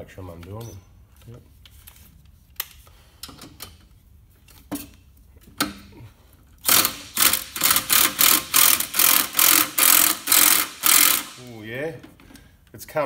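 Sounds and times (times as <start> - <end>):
impact driver hammering: 6.7 - 11.4.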